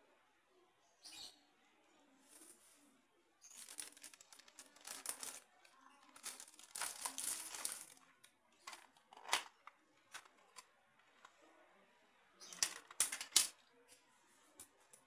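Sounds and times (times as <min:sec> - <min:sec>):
plastic parts clicking and tapping: 0:03.5 - 0:05.4, 0:06.1 - 0:08.0, 0:08.6 - 0:11.3, 0:12.4 - 0:13.6
plastic bag crinkling: 0:03.5 - 0:08.0.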